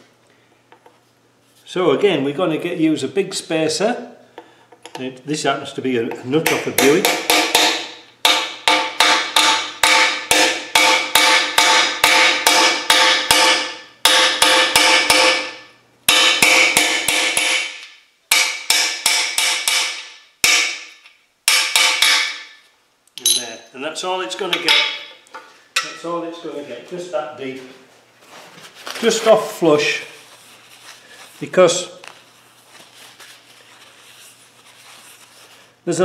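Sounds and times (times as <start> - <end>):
hammer striking metal: 6.4 - 20.9, 21.5 - 22.6, 24.5 - 25.2, 25.8 - 26.1.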